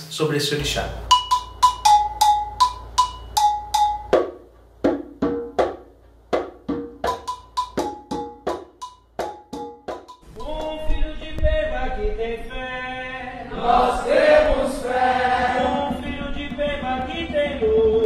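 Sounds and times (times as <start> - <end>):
steady drum beat: 1.0 - 11.7.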